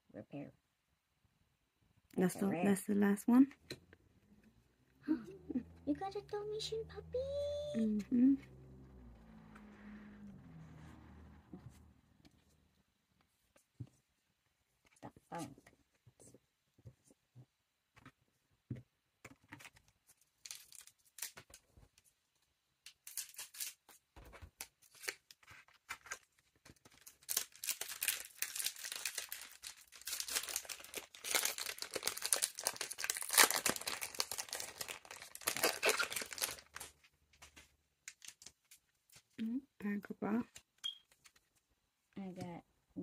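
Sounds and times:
foil wrapper tearing and crinkling: 20.4 - 21.6, 22.9 - 24.0, 24.6 - 36.9, 38.1 - 38.8.

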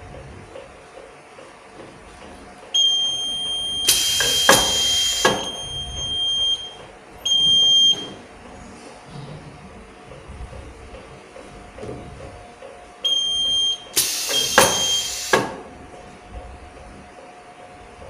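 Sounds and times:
pneumatic hiss with knocks: 3.9 - 5.6, 14.0 - 15.7.

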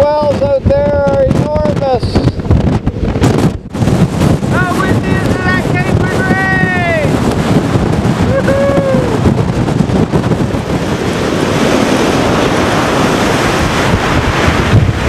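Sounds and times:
heavy surf breaking: 0.0 - 15.0
wind buffeting microphone: 0.0 - 15.0
person crying out: 8.2 - 9.3.

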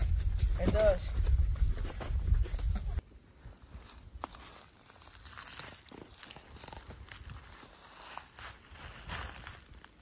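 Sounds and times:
footsteps on dry leaves: 3.4 - 10.0.

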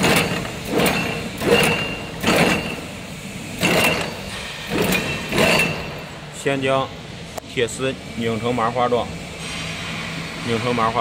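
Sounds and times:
machine gears clattering: 0.0 - 3.0, 3.6 - 6.1.

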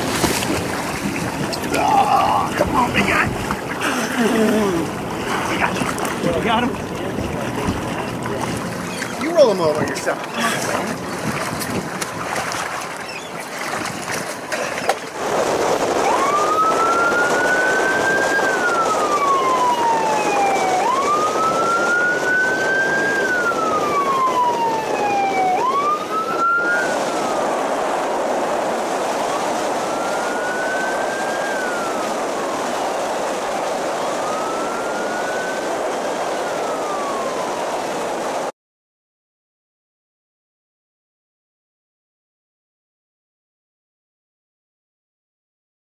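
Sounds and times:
boat siren wailing: 0.0 - 13.4, 15.2 - 38.5
rush of wind and water: 0.0 - 38.5.

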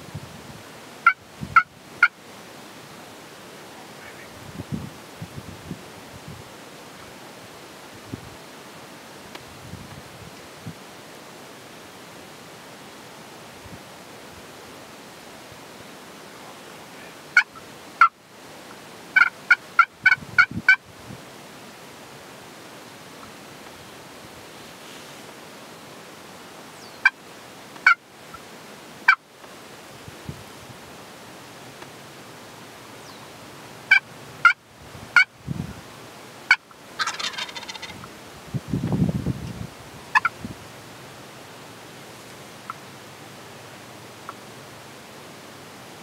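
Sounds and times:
wild turkey gobbling: 1.0 - 2.2, 17.4 - 18.2, 19.2 - 20.8, 33.9 - 34.6, 36.5 - 38.1, 40.1 - 40.4.

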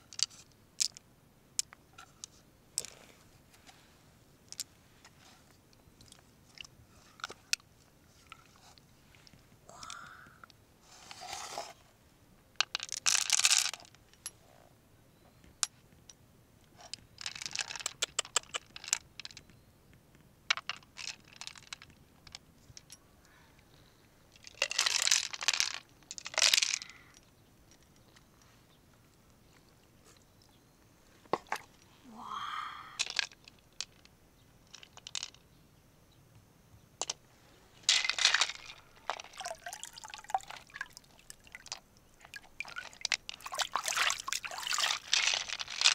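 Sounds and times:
crunching and scraping of shells: 12.6 - 14.0, 16.8 - 19.5, 20.5 - 23.0, 24.4 - 28.5, 33.0 - 35.4, 37.8 - 45.9.

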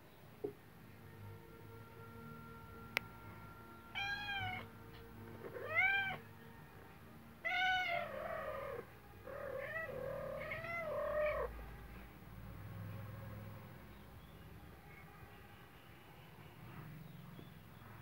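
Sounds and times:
cat meowing: 3.9 - 4.7, 5.4 - 6.3, 7.4 - 11.5.

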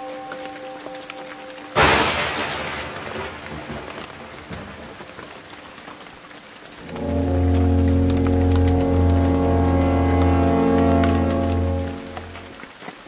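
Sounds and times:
steady rain: 0.0 - 13.0
thunderclap rumbling: 1.8 - 5.7
music of sustained low tones: 6.8 - 12.7.

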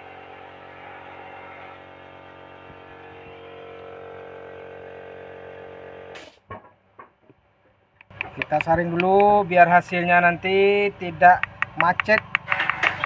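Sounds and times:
motor humming: 0.0 - 6.2.

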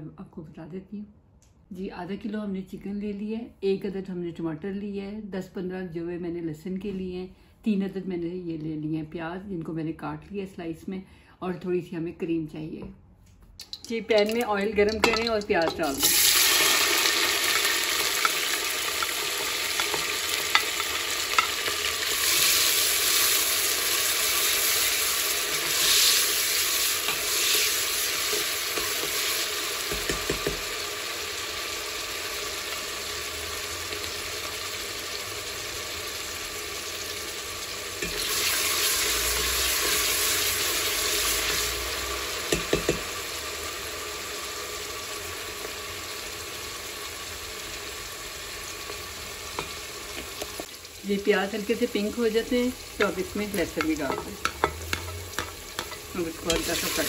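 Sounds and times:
onions sizzling in hot oil: 14.2 - 57.0.

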